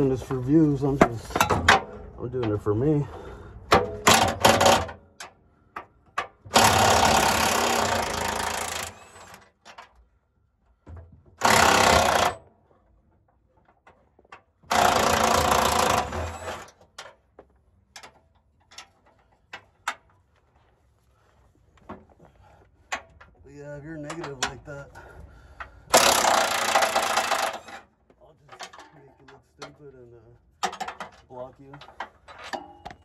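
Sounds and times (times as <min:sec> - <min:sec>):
impact wrench hammering: 0:03.7 - 0:05.0, 0:25.9 - 0:27.8.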